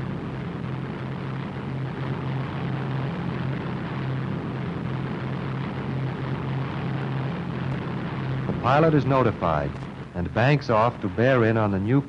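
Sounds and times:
constant hiss: 0.0s - 12.0s
propeller aircraft engine drone: 0.0s - 12.0s.

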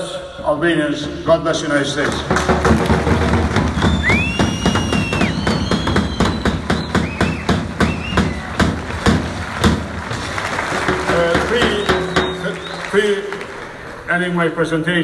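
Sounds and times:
crowd clapping in rhythm: 2.0s - 14.3s
loud whistles: 3.7s - 9.0s, 11.1s - 13.2s.

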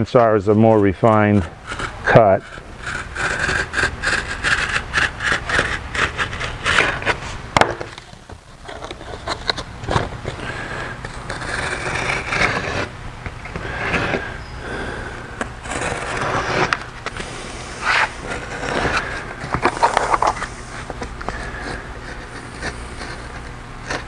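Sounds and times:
knife slicing through paper: 15.7s - 20.8s.

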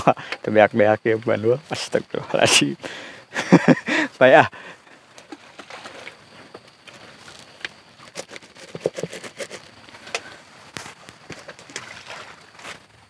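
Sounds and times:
fishing tackle clicking and knocking: 7.6s - 10.2s.

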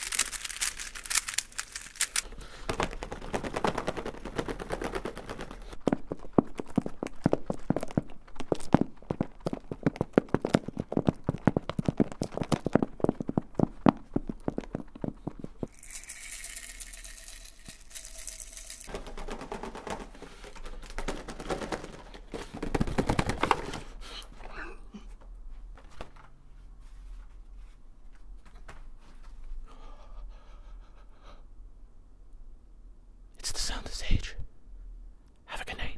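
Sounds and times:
crinkly rustling of objects: 0.0s - 24.5s.

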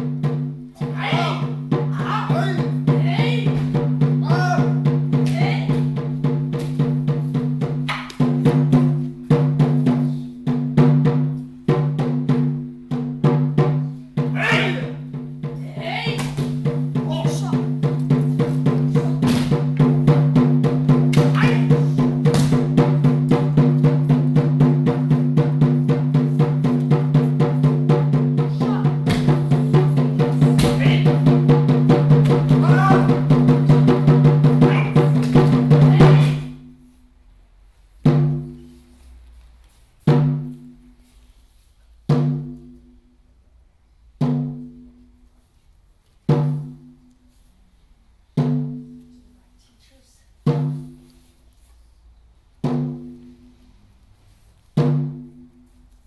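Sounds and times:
large drum roll: 0.0s - 36.6s.

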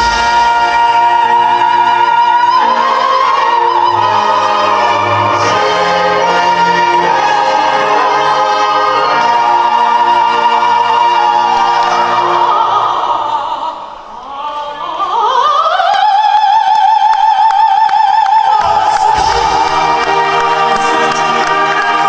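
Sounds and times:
orchestra and band playing: 0.0s - 12.7s, 18.6s - 22.0s
operatic singing: 0.0s - 22.0s.

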